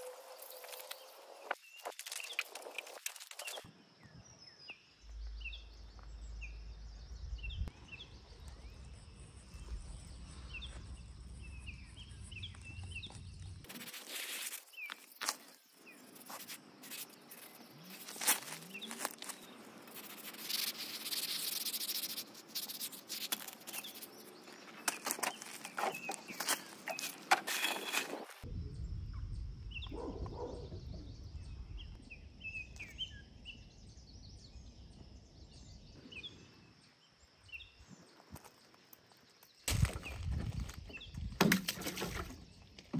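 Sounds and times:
small birds chirping: 0.0s - 42.9s
wind rumbling on microphone: 6.8s - 7.7s, 28.1s - 32.5s, 39.7s - 41.4s
gravel crunching: 11.8s - 21.6s, 22.2s - 28.5s, 37.8s - 42.9s.

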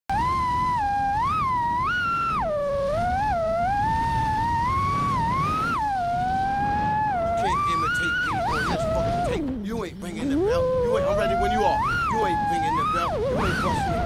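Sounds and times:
drone motors whining: 0.1s - 14.0s
rush of wind and propellers: 0.1s - 14.0s.

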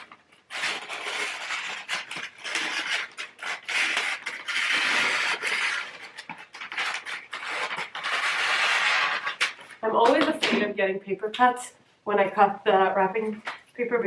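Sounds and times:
paper crackling and rustling: 0.0s - 10.4s.

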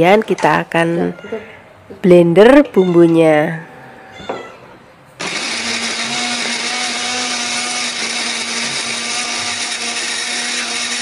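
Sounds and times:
blender running: 5.2s - 11.0s.

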